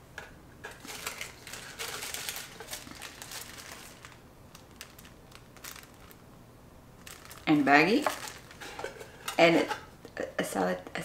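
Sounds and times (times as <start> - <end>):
plastic packaging crinkling: 0.6 - 6.2, 7.0 - 9.4.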